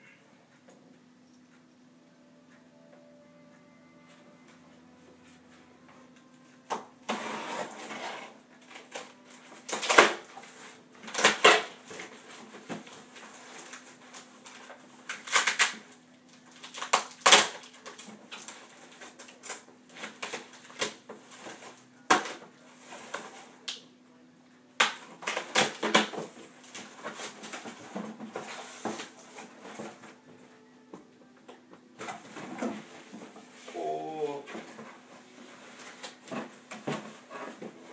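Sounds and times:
packing tape ripping: 0:07.1 - 0:12.1, 0:13.3 - 0:21.0, 0:24.8 - 0:27.7.

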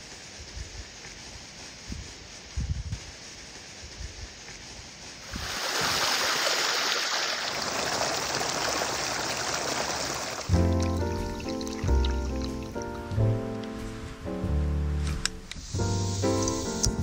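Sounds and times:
brook splashing over rock: 0:05.3 - 0:10.8
water bottle filling in stream: 0:05.3 - 0:13.0.

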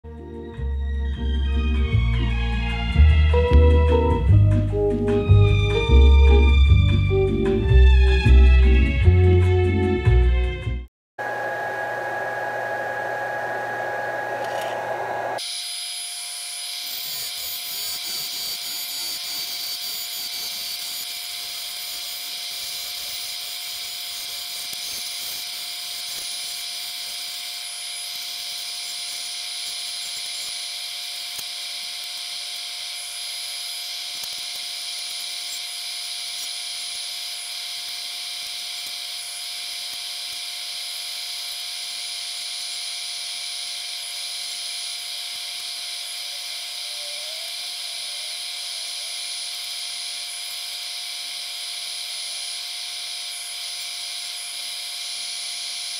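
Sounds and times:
lathe motor whine: 0:11.2 - 0:55.9
tool shaving plastic hiss: 0:14.3 - 0:55.9.

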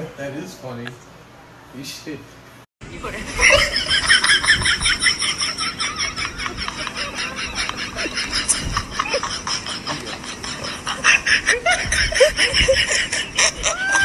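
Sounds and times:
person laughing: 0:03.0 - 0:14.0.

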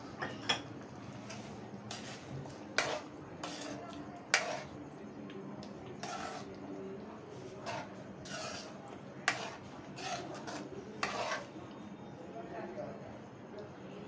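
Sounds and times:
metal spoon scraping pan: 0:01.3 - 0:04.7, 0:06.0 - 0:06.6, 0:07.4 - 0:11.6.

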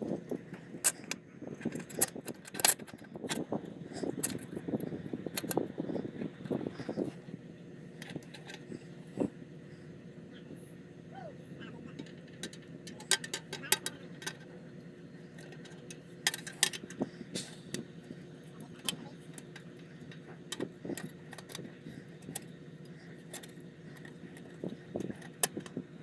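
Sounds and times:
steady low hum: 0:00.0 - 0:26.0
small parts and tools clicking: 0:00.5 - 0:05.7, 0:12.0 - 0:14.5, 0:15.3 - 0:17.8, 0:18.8 - 0:25.8.

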